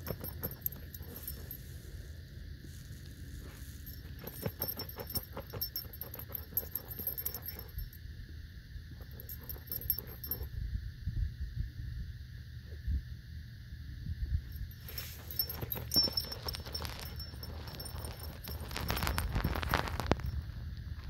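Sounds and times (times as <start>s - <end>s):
dog digging in gravel: 0.0s - 1.8s, 3.2s - 7.8s, 9.0s - 10.5s, 14.8s - 20.4s
harness jingling: 0.0s - 2.0s, 3.4s - 8.0s, 9.0s - 10.5s, 14.5s - 20.5s.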